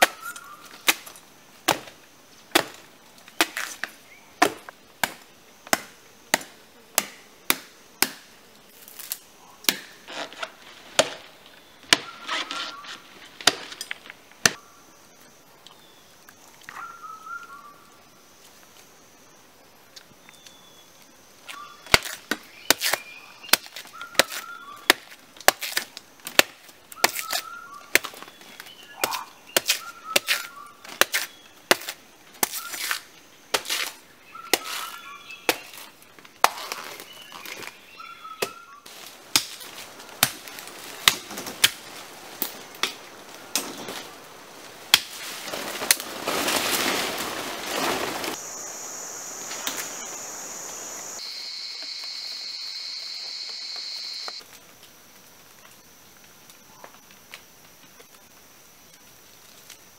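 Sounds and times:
bird chirps: 28.6s - 31.5s
high insect drone: 46.5s - 59.9s.

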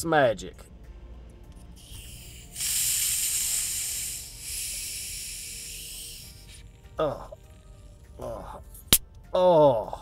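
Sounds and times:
soda bottle hissing: 1.8s - 7.6s.

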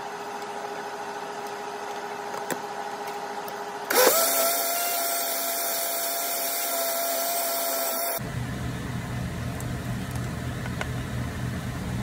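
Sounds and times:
blender motor whining: 3.9s - 8.2s
low steady hum: 8.2s - 12.0s.

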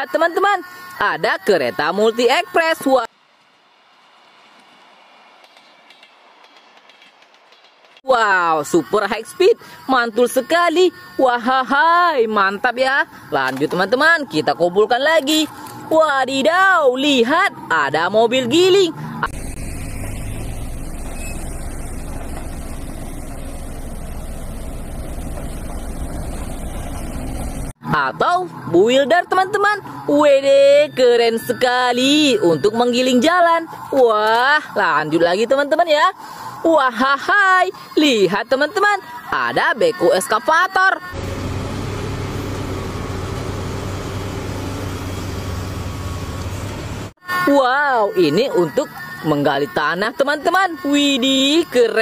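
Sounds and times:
road roller diesel engine rumbling: 18.4s - 27.8s, 41.0s - 47.2s.

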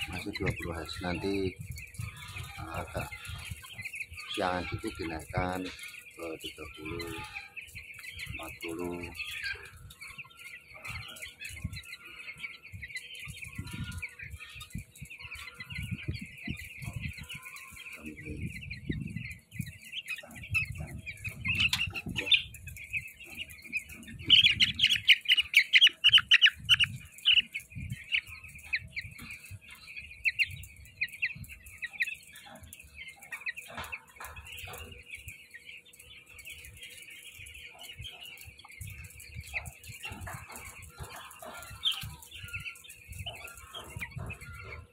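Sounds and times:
chicks peeping: 0.0s - 44.9s.

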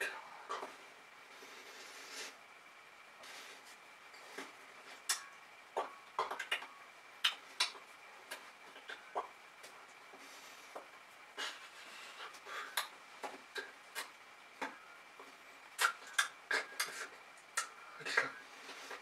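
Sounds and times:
faint high whine: 0.0s - 19.0s
lip and tongue sounds: 6.2s - 7.8s, 15.8s - 17.8s.

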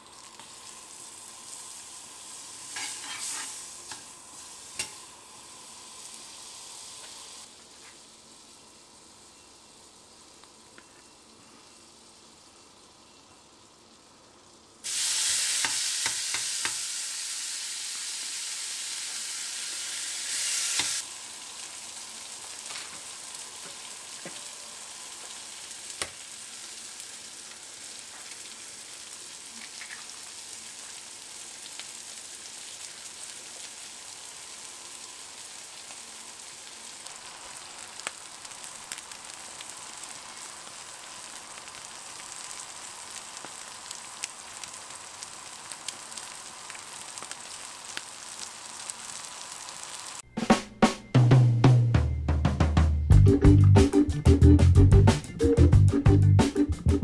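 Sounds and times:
meat sizzling on hot plate: 0.0s - 50.2s
crackles: 20.7s - 50.6s.

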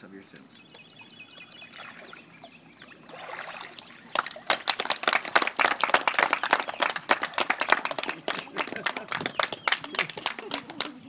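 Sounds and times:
pool water splashing: 0.8s - 11.0s
group clapping: 4.1s - 11.0s.

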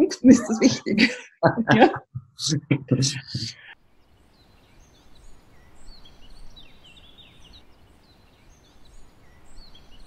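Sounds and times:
small birds chirping: 3.2s - 10.0s.

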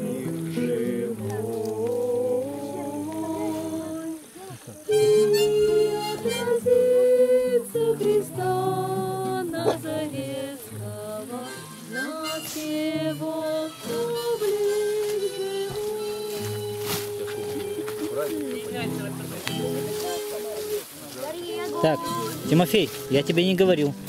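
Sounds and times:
strummed acoustic guitar: 0.0s - 4.2s, 4.8s - 24.0s
harmonica melody: 4.9s - 24.0s.

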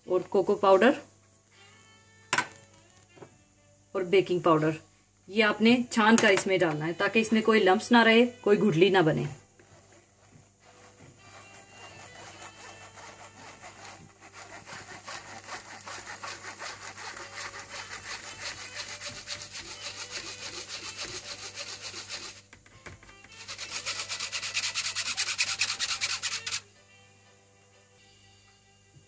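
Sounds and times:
whisk scraping sieve mesh: 9.6s - 22.4s.

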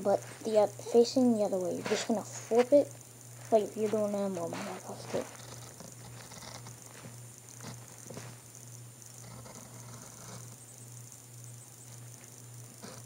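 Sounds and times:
low steady hum: 0.0s - 13.0s
pencil scratching on paper: 3.9s - 7.0s.

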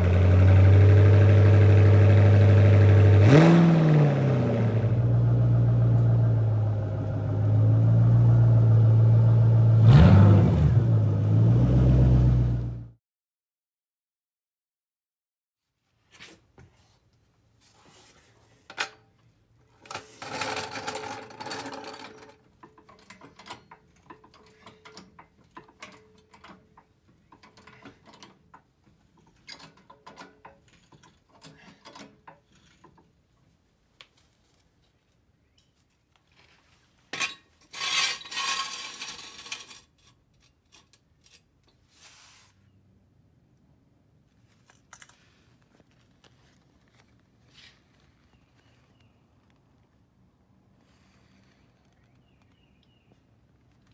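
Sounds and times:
metal scraping on concrete: 19.8s - 26.6s, 37.1s - 42.6s
metal clicks and clanks: 19.8s - 33.2s.

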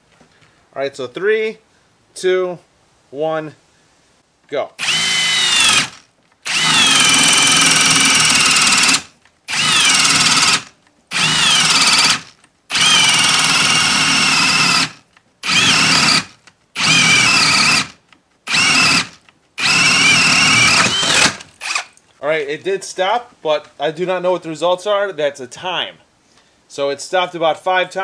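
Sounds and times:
hammer drill boring into wood: 4.8s - 22.0s.

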